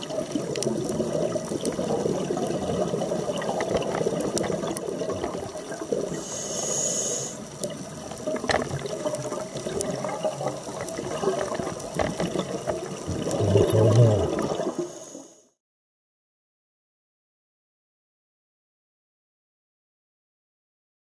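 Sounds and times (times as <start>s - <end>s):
underwater rushing and bubbling: 0.0s - 15.5s.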